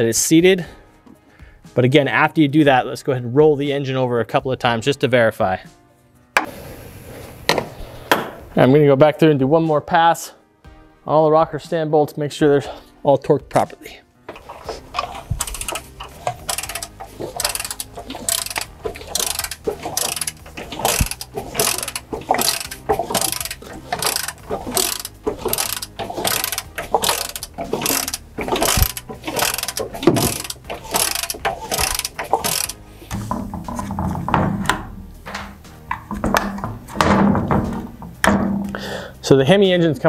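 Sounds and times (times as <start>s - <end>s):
torque wrench ratchet clicking: 14.4s - 32.8s.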